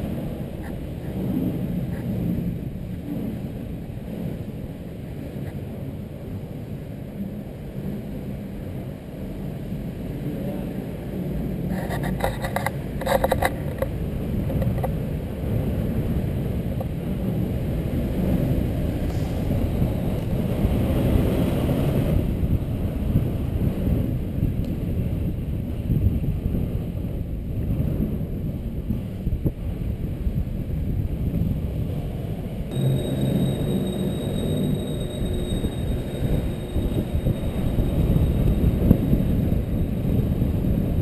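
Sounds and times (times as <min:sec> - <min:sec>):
short squeak: 0:32.7 - 0:40.1.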